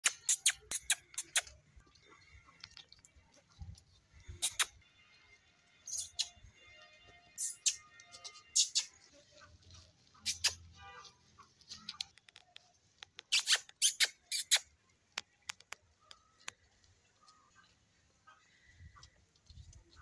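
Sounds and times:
calf suckling: 0.0s - 4.8s.

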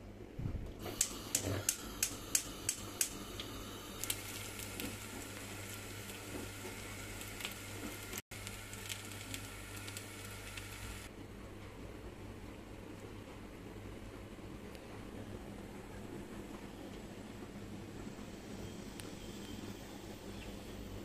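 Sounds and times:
pastry sizzling in oil: 0.8s - 11.1s
sharp crackles: 4.0s - 11.1s.

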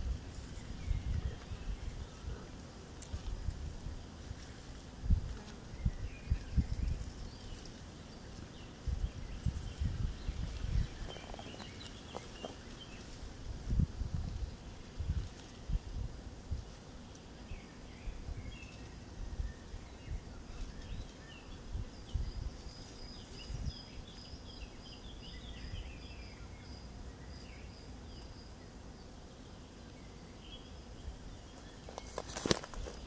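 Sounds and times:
wind rumbling on microphone: 0.0s - 7.8s, 8.4s - 16.8s, 17.5s - 26.0s
distant birds chirping: 5.7s - 13.3s
loud rustle: 31.7s - 33.0s.

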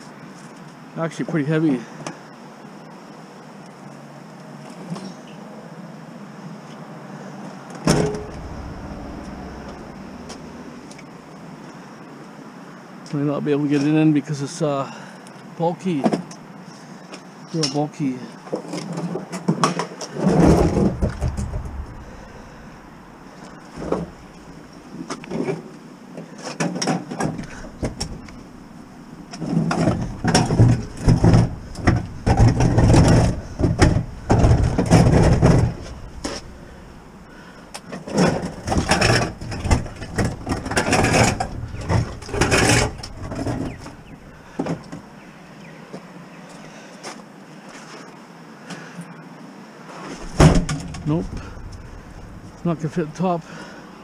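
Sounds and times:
metal freezer knocking and scraping: 7.9s - 10.8s, 20.2s - 22.7s, 27.2s - 28.6s, 29.3s - 44.8s, 50.2s - 52.8s.

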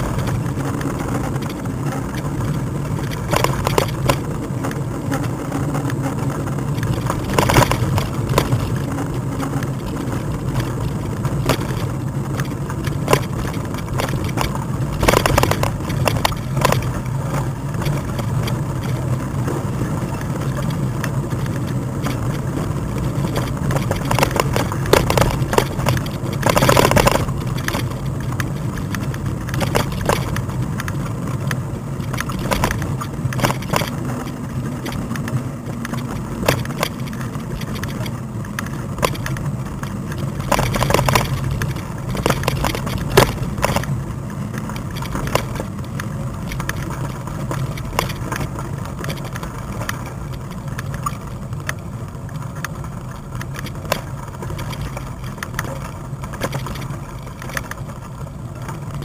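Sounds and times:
bike knocks and rattles: 0.0s - 59.0s
bike low hum: 0.0s - 59.0s.

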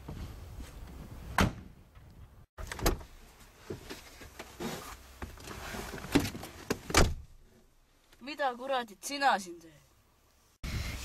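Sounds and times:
car door slamming: 6.9s - 7.3s.

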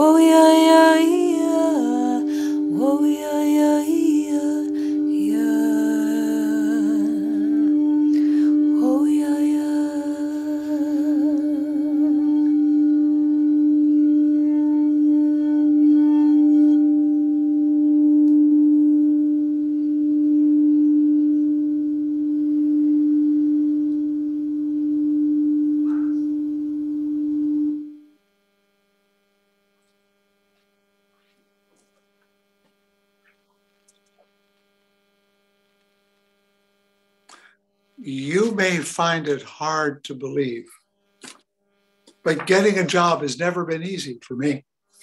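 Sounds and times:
person singing note: 0.0s - 17.0s, 25.8s - 26.2s, 38.0s - 39.8s
crystal singing bowl ringing: 0.0s - 28.1s.

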